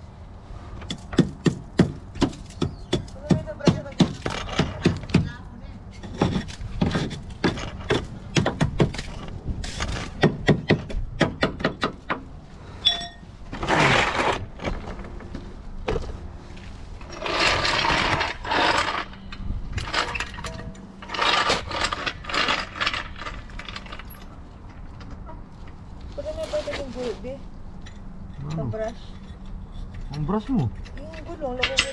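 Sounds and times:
scraping noises: 0:12.5 - 0:28.1.

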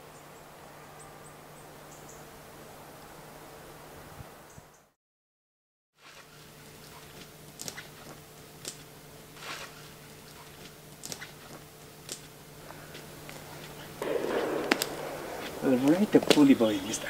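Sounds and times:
steady low hum: 0:00.0 - 0:04.9, 0:06.0 - 0:17.0
footsteps crunching on twigs: 0:06.0 - 0:17.0
twig snaps: 0:06.1 - 0:16.6.

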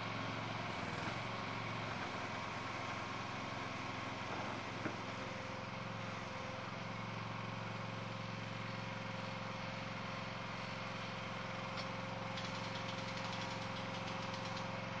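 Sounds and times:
engine running with whine: 0:00.0 - 0:15.0.

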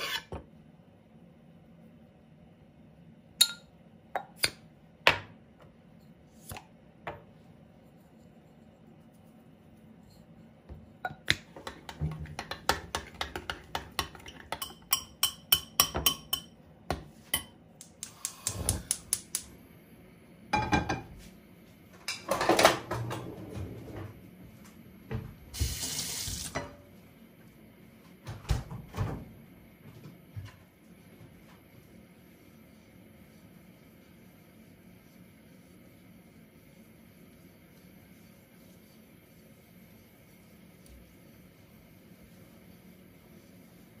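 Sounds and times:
fork beating eggs in glass bowl: 0:11.4 - 0:16.6
kitchenware clattering: 0:20.6 - 0:21.2.

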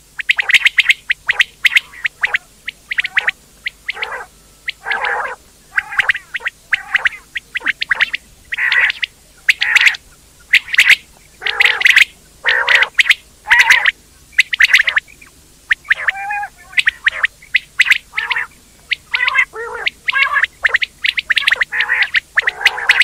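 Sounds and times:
quail calling: 0:00.2 - 0:23.0.

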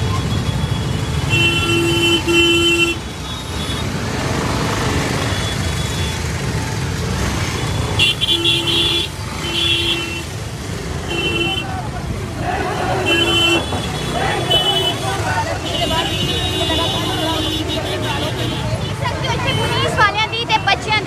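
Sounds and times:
vehicle horns honking: 0:00.0 - 0:04.0, 0:07.4 - 0:11.9, 0:12.8 - 0:20.0
traffic engines rumbling: 0:00.0 - 0:21.0.

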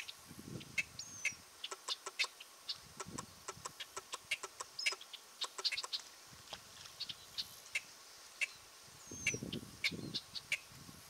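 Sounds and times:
sharp clicking calls: 0:00.8 - 0:06.1.

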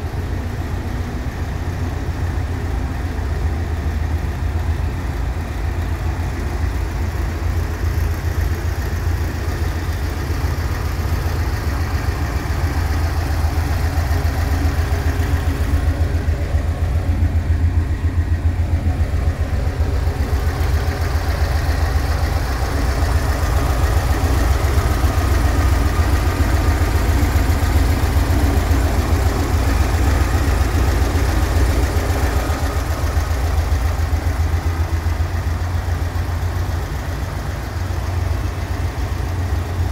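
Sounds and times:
van engine idling: 0:00.0 - 0:39.9.

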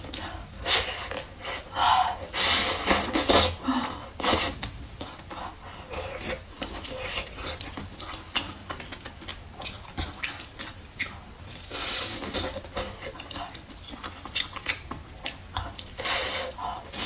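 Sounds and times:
chewing with wet mouth clicks: 0:04.6 - 0:16.2.

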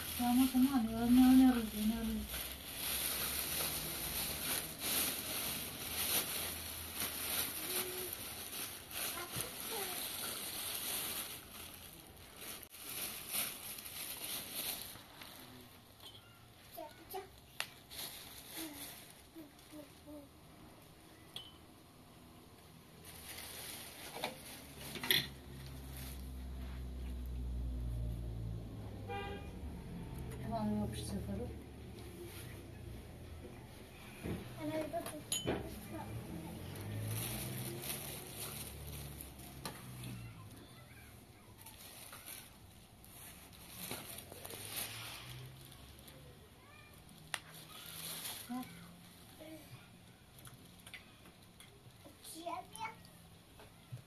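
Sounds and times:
plastic bag rustling: 0:00.0 - 0:16.1, 0:16.7 - 0:20.2, 0:22.9 - 0:27.9, 0:30.5 - 0:49.7
toys being handled: 0:02.3 - 0:15.3.

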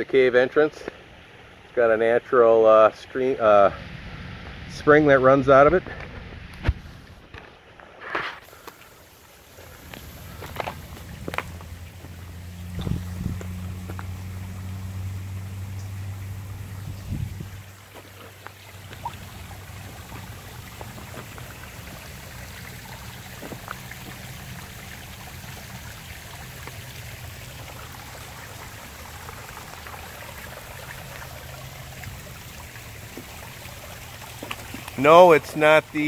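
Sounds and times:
small waterfall splashing: 0:06.2 - 0:36.0
low hum: 0:08.8 - 0:35.0.

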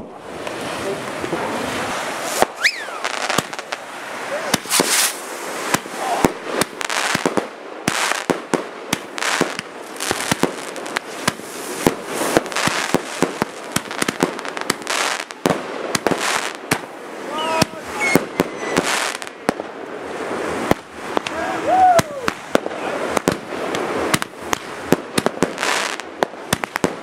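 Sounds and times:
fireworks bangs: 0:00.0 - 0:27.0
fireworks crackling and hissing: 0:00.0 - 0:27.0
falling whistle: 0:02.6 - 0:03.1, 0:17.4 - 0:19.0.

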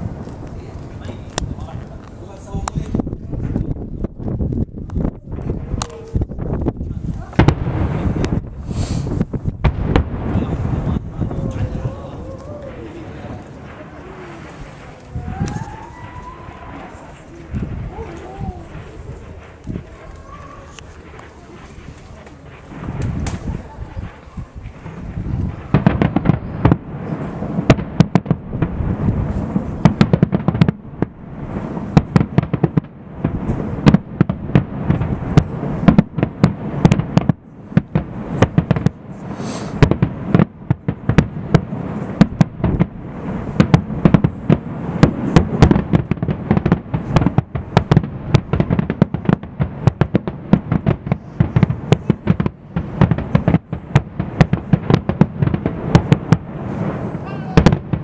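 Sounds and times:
low rumble: 0:00.0 - 0:39.2
fireworks bangs: 0:00.0 - 0:58.0.

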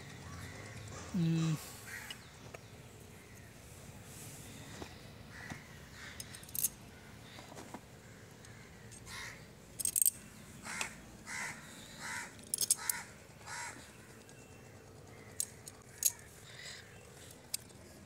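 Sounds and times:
crow cawing: 0:01.8 - 0:02.2, 0:05.3 - 0:06.4, 0:08.0 - 0:09.5, 0:10.6 - 0:13.9.

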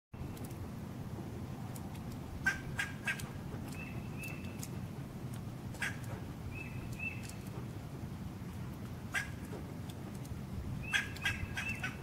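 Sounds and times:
squirrel barking: 0:02.4 - 0:04.6, 0:05.7 - 0:07.5, 0:09.1 - 0:09.5, 0:10.8 - 0:12.0
bird whistling: 0:03.7 - 0:04.7, 0:05.8 - 0:07.4, 0:10.8 - 0:12.0.

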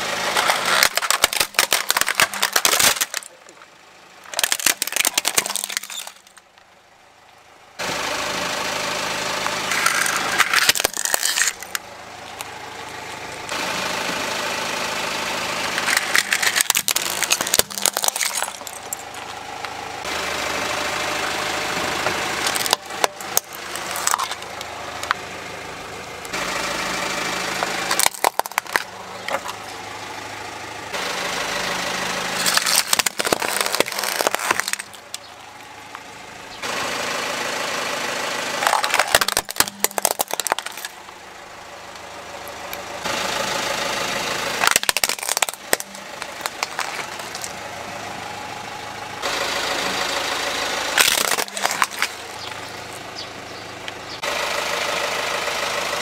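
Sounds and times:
car engine idling: 0:00.0 - 0:56.0
plastic toys cracking: 0:00.3 - 0:03.6, 0:04.2 - 0:06.6, 0:09.7 - 0:12.5, 0:15.7 - 0:19.4, 0:22.4 - 0:25.2, 0:27.6 - 0:29.8, 0:32.4 - 0:35.4, 0:38.6 - 0:41.1, 0:44.6 - 0:47.6, 0:51.0 - 0:52.3.

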